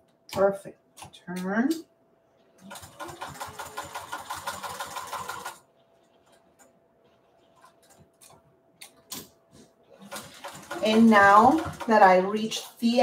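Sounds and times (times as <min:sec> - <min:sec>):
sewing machine stitching: 0:02.6 - 0:08.1, 0:09.9 - 0:12.7.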